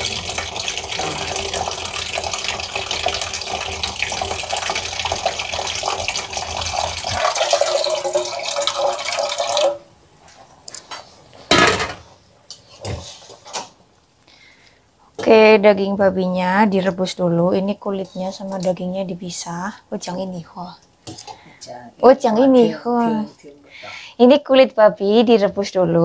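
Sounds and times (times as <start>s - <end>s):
water running: 0.0s - 9.9s.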